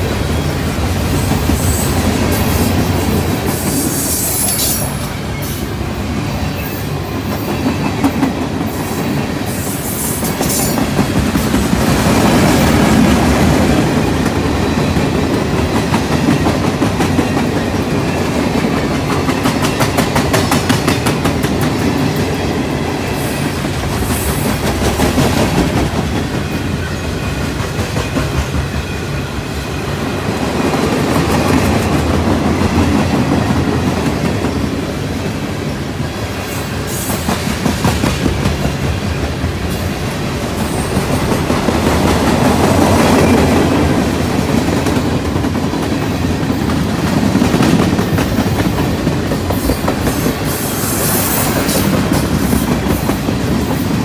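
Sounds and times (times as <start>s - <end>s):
train wheels clicking over rail joints: 6.5s - 29.2s, 36.8s - 54.0s.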